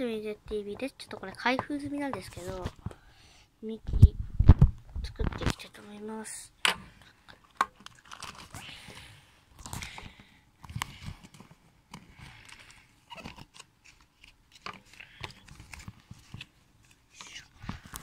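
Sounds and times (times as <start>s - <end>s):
plastic bag crinkling: 7.4s - 8.7s.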